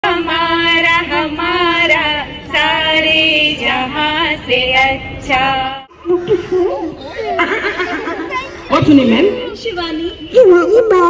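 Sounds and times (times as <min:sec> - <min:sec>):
woman singing unaccompanied: 0:00.0 - 0:06.6.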